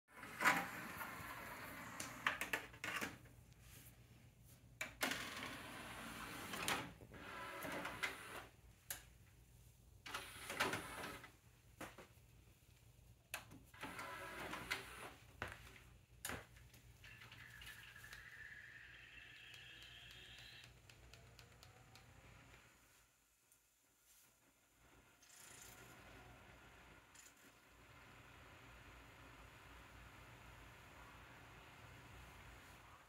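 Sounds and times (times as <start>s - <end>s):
disc player mechanism whirring: 5.0s - 8.6s, 10.1s - 11.3s, 13.8s - 15.2s, 17.1s - 22.8s.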